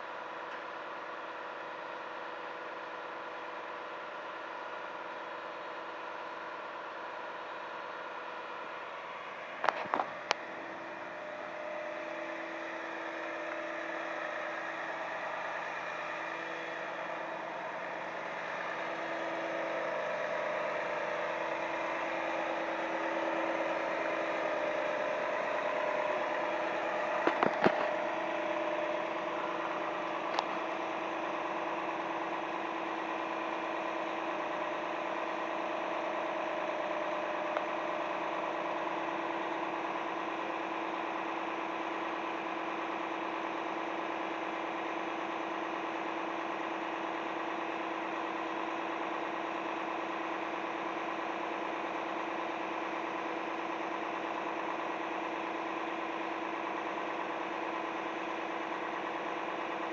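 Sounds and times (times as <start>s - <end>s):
diesel truck engine running: 0.0s - 59.9s.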